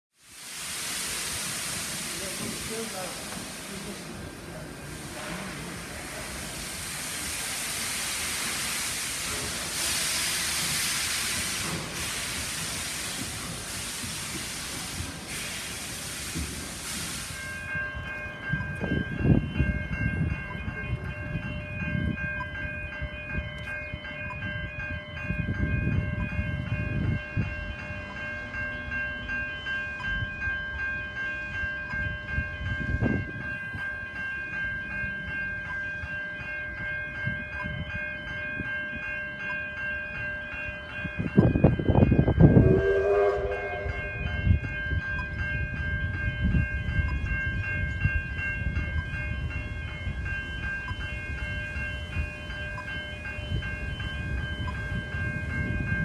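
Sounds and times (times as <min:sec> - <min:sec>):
level crossing bells ringing: 0:17.4 - 0:56.0
steam whistle blast: 0:42.5 - 0:44.4.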